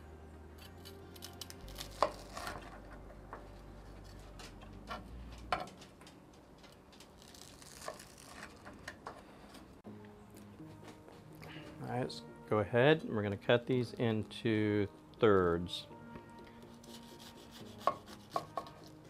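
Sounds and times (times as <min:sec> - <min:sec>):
knife crunching through toast: 0:00.6 - 0:02.8, 0:07.0 - 0:08.7.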